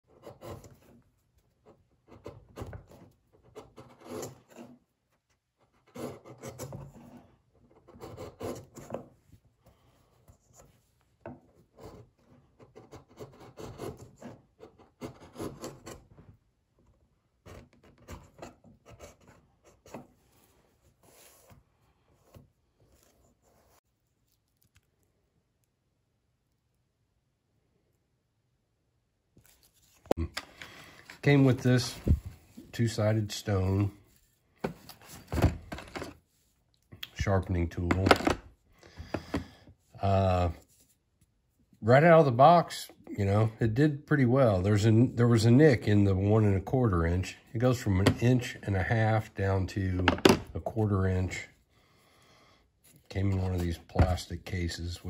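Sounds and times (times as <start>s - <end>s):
chisel scraping wood: 0.1s - 4.9s, 5.6s - 9.1s, 11.4s - 16.1s.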